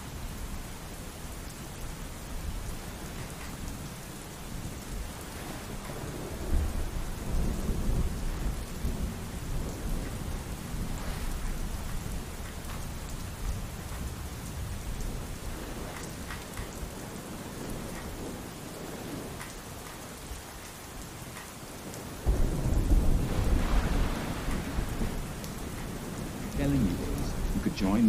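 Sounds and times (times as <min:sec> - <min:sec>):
steady pouring rain: 0:00.0 - 0:28.0
loud thunder roll: 0:22.2 - 0:28.0.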